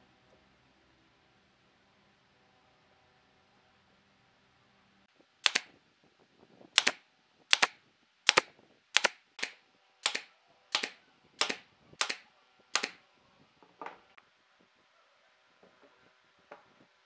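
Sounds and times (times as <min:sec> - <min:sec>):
nail gun firing: 0:05.4 - 0:05.7, 0:06.8 - 0:12.2, 0:12.8 - 0:13.0.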